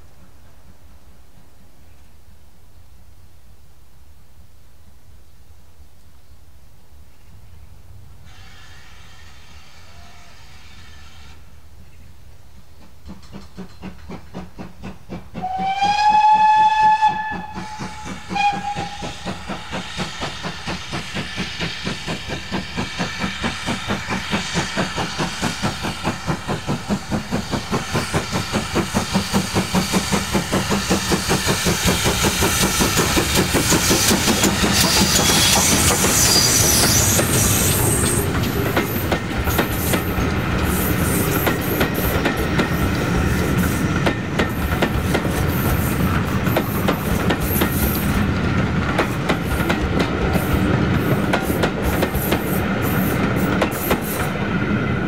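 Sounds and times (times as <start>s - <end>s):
steam locomotive whistle: 8.3s - 11.5s, 15.4s - 20.2s, 33.7s - 38.4s
locomotive exhaust beats: 12.9s - 40.7s.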